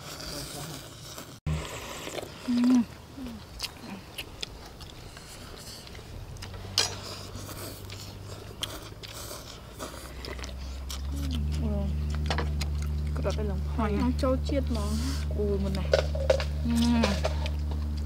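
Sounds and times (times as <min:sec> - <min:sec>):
people slurping noodles: 0:00.0 - 0:13.3
person humming: 0:11.1 - 0:12.0, 0:16.6 - 0:17.6.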